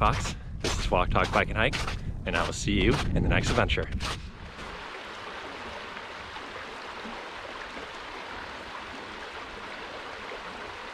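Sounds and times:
water rushing over rocks: 4.4 - 10.9.

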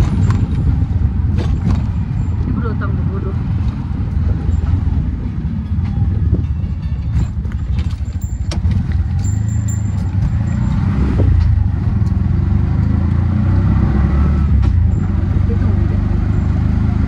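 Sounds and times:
wind buffeting: 0.0 - 13.8
engine and road rumble: 0.0 - 17.0
sharp rattles: 7.1 - 12.3.

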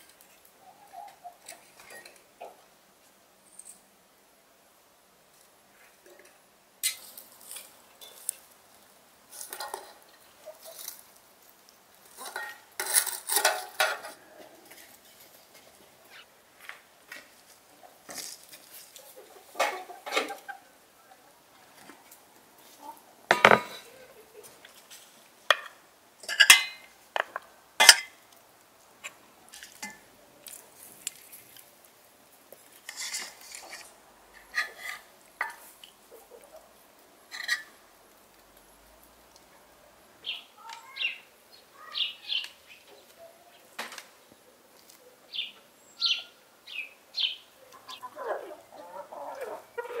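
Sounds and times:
chickens clucking: 0.4 - 2.7, 9.4 - 11.2, 17.7 - 24.8, 33.3 - 37.9, 47.2 - 50.0.

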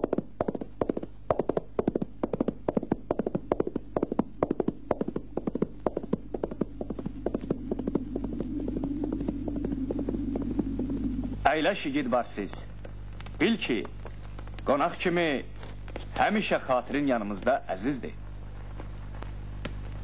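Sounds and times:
horse galloping: 0.0 - 11.6
low steady hum: 0.0 - 20.0.

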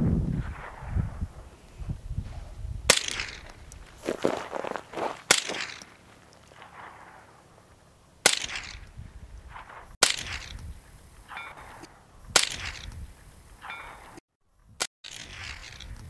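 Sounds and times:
rifle shots with echo: 2.9 - 3.6, 5.2 - 10.6, 11.3 - 12.9.

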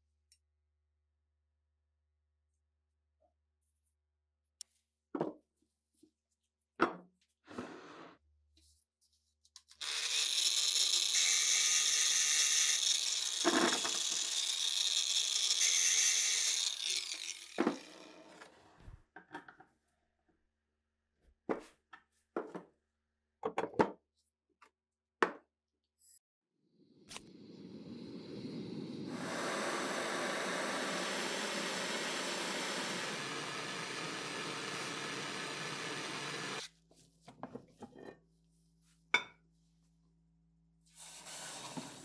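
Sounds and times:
power tool on rusty metal: 9.8 - 18.6, 28.0 - 36.7.

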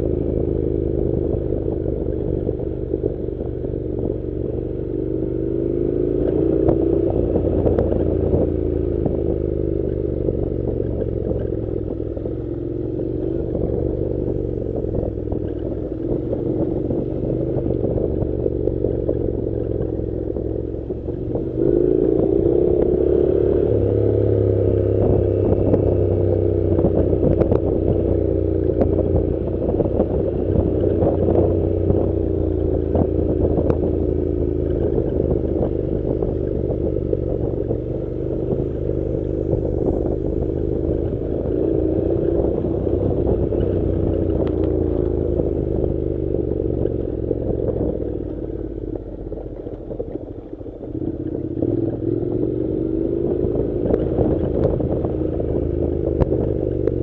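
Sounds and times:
motorcycle engine running: 0.0 - 57.0
gravel clattering under tyres: 25.0 - 57.0.

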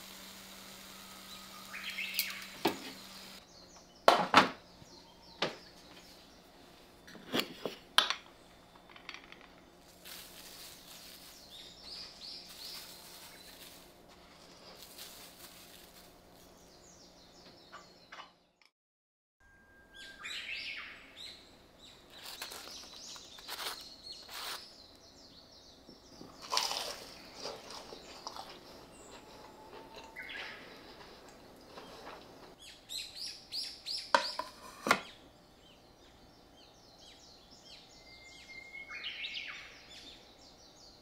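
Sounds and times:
birds chirping: 0.0 - 7.1, 8.2 - 18.3, 19.9 - 41.0
salt being shaken: 9.9 - 16.2.

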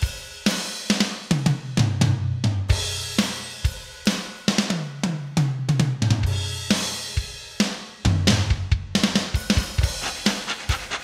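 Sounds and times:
bass drum: 8.1 - 11.0
snare drum: 8.2 - 11.0.

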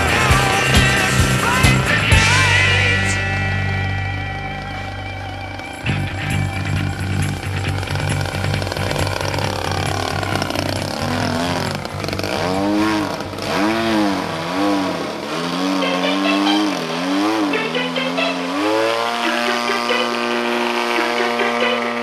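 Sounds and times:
background music: 0.0 - 14.2
model plane engine swooping: 4.6 - 22.0.

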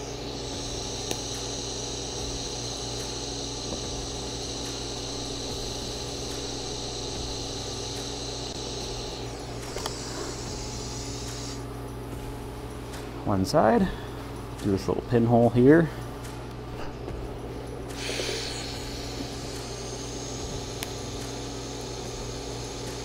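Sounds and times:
welding arc hissing: 0.0 - 11.7, 17.9 - 23.0
machine hum: 0.0 - 23.0.

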